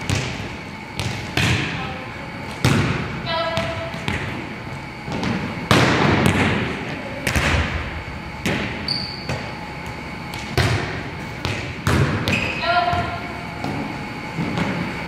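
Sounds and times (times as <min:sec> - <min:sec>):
volleyballs smacked and bouncing: 0:00.0 - 0:01.8, 0:02.5 - 0:15.0
shoe squeak: 0:08.8 - 0:09.6, 0:12.3 - 0:12.8.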